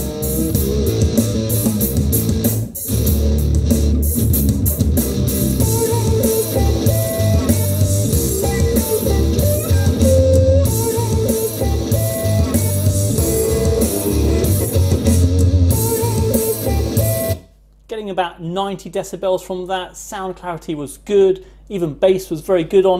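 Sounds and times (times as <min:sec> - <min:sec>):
guitar music with strong bass: 0:00.0 - 0:17.4.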